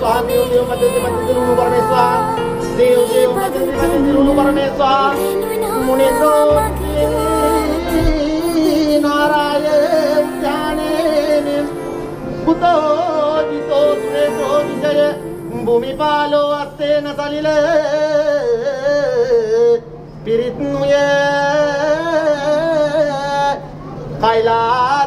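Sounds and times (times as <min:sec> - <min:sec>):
instrumental accompaniment: 0:00.0 - 0:18.3
person singing ornamented melody: 0:00.0 - 0:19.2.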